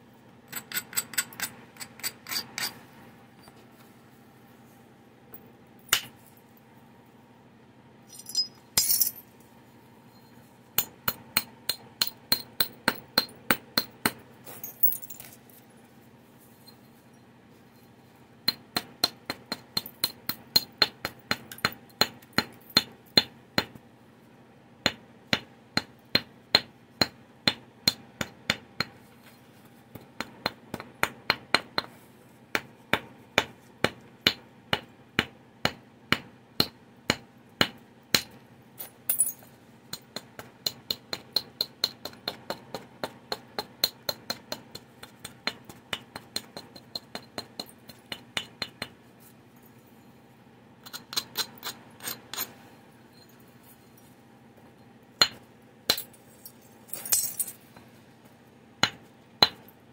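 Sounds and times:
antler tapping stone: 39.9 - 49.0.

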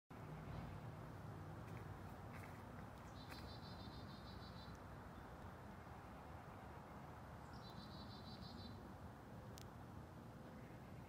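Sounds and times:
songbird high trill: 7.4 - 8.8
faint click: 9.5 - 9.7.

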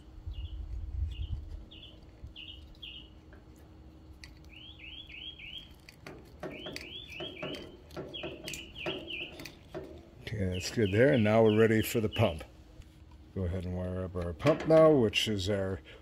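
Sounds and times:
bird chirping: 0.3 - 3.2, 4.4 - 12.5.

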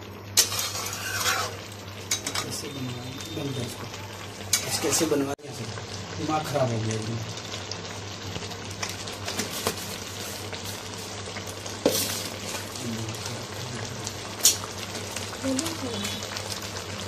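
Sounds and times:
chicken sizzling in a wok: 0.0 - 17.0
metal spatula scraping a pan: 0.4 - 2.6.

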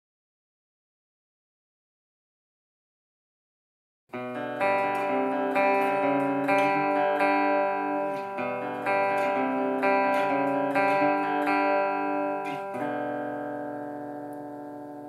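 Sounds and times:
clean electric guitar chords: 4.1 - 15.0.

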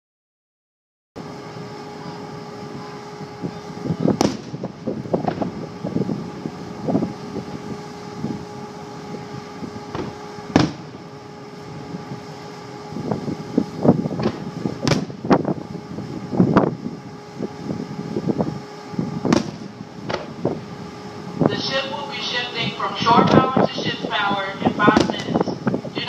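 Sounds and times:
steady hum: 1.2 - 26.0
fireworks booming: 4.1 - 6.0, 9.8 - 11.1, 14.0 - 15.6, 19.2 - 20.6, 24.8 - 25.5.

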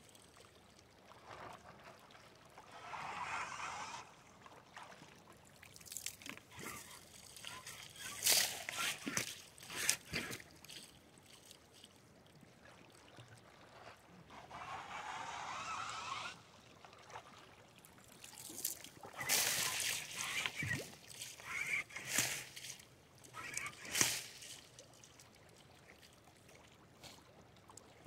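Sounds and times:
gurgling rush of water: 1.2 - 4.9, 18.2 - 24.4
water splashing around boots: 4.8 - 12.0, 16.8 - 25.3.

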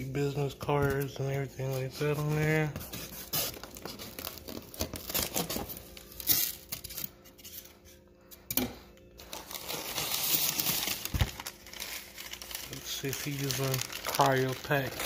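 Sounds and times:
packing material crinkling: 1.1 - 7.2, 9.2 - 15.0.

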